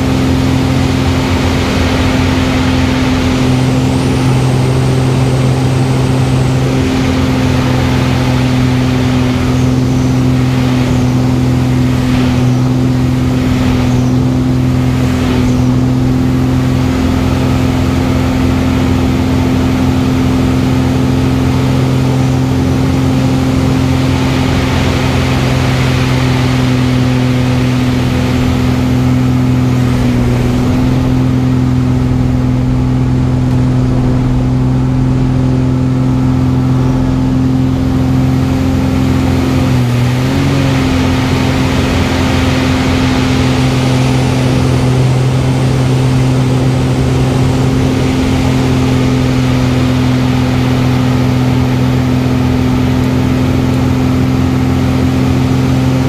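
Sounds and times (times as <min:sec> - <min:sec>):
airflow rush: 0:00.0 - 0:56.0
propeller plane engine droning: 0:00.0 - 0:56.0.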